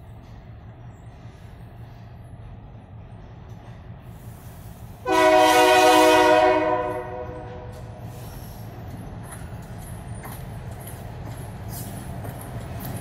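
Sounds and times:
train rumble: 0.0s - 13.0s
locomotive air horn blast: 5.0s - 7.7s.

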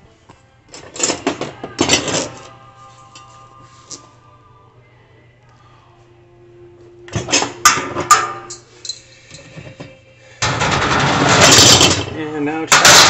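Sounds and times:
grill parts knocking: 10.4s - 13.0s.

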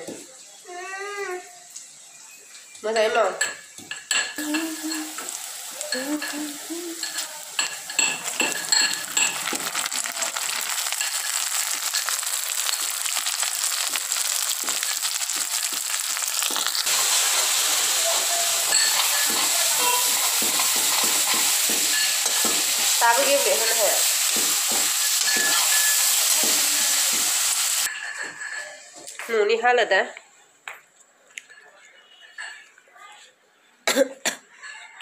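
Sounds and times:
food sizzling in hot oil: 3.4s - 28.6s
metal clinks and scrapes of stirring: 5.9s - 15.5s, 18.2s - 23.4s, 24.0s - 29.0s.

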